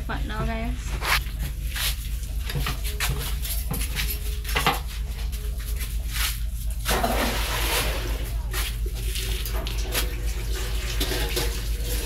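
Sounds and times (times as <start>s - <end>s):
steady low hum: 0.0s - 12.0s
pot and utensils clattering: 6.8s - 8.4s, 9.4s - 12.0s.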